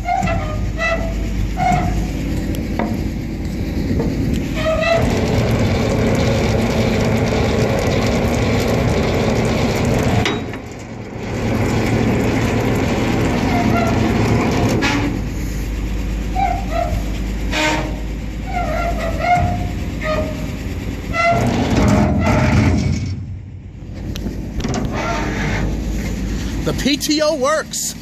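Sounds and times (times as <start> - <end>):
short squeaks: 0.0 - 2.1, 4.5 - 5.2, 16.3 - 23.2, 24.7 - 25.8
winch clattering and grinding: 0.0 - 23.3, 23.9 - 26.7.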